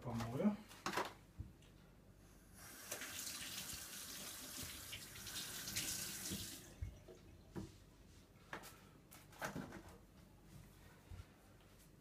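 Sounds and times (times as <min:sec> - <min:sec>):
faucet running into steel sink: 0:02.7 - 0:06.7.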